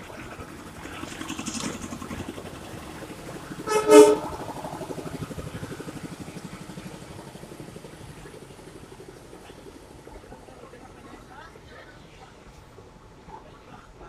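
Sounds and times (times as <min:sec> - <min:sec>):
small engine rattling: 0:00.0 - 0:10.5
short horn toot: 0:03.7 - 0:04.4.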